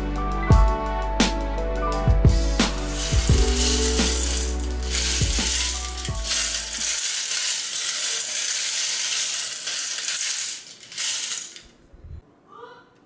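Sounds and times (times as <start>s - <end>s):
plastic gears clattering: 2.9s - 11.8s.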